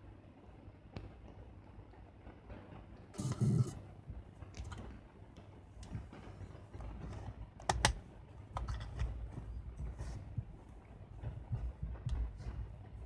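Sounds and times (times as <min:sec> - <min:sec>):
soft rubbing on camera: 0:08.8 - 0:13.0.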